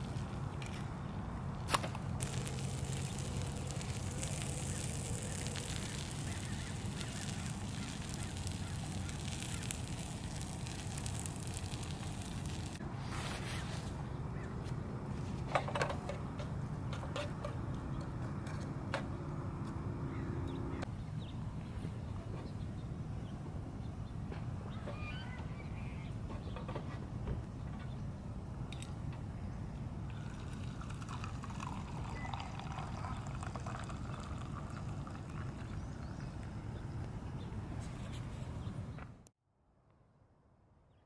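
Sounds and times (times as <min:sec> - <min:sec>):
gas burner hum: 0:01.7 - 0:12.8
eggs sizzling in frying pan: 0:02.2 - 0:12.8, 0:30.2 - 0:35.9.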